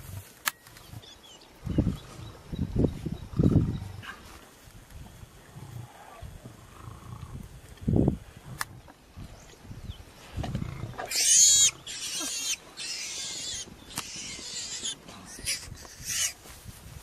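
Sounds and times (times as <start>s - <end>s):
lions growling low: 5.4s - 7.4s, 10.3s - 11.2s
pig squealing shrilly: 11.1s - 16.4s.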